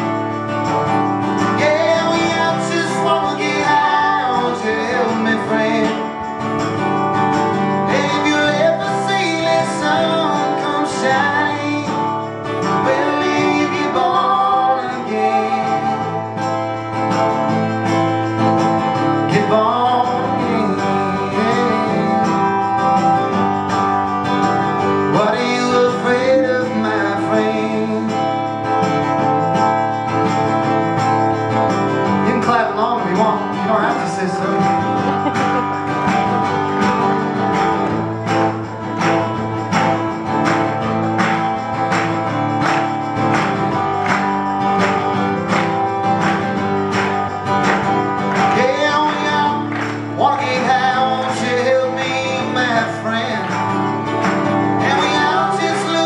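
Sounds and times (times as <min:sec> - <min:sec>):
acoustic guitar strumming: 0:00.0 - 0:56.0
tambourine beat: 0:00.0 - 0:56.0
person singing: 0:01.4 - 0:06.3, 0:07.9 - 0:16.6, 0:19.2 - 0:23.0, 0:25.1 - 0:28.5, 0:32.2 - 0:36.0, 0:48.4 - 0:53.7, 0:54.8 - 0:56.0.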